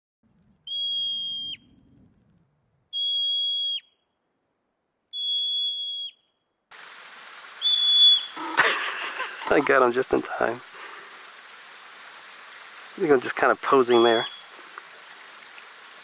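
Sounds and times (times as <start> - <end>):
marmot alarm whistles: 0.6 - 1.8, 2.9 - 4.0, 5.1 - 6.3, 7.6 - 8.4, 13.9 - 14.5.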